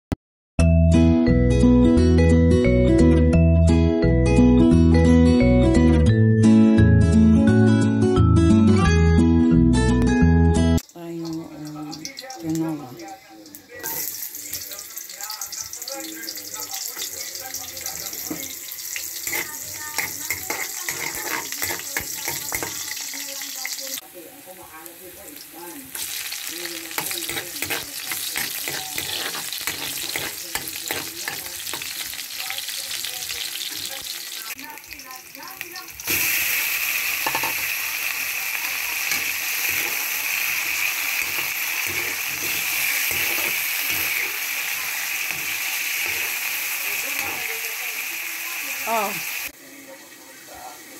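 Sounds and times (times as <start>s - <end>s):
oil sizzling in a wok: 10.8s - 50.9s
metal ladle scraping a wok: 18.2s - 23.2s, 26.9s - 32.1s, 39.1s - 46.5s.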